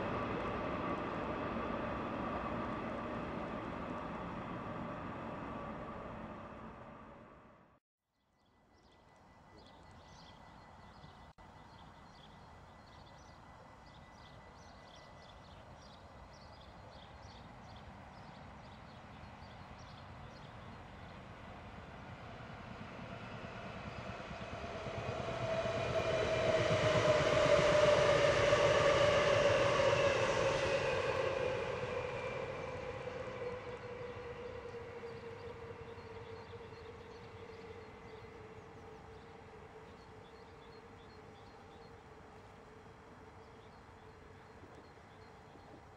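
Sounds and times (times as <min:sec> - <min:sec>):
train wheels rumbling on rail: 0:20.0 - 0:38.1.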